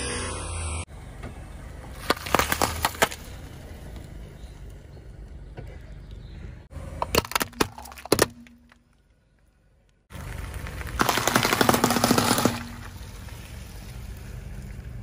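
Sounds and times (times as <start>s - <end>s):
tyre rumbling on asphalt: 1.8s - 6.0s, 10.1s - 15.0s
tyre crushing plastic bags: 2.0s - 3.3s, 7.0s - 8.8s, 10.9s - 13.0s.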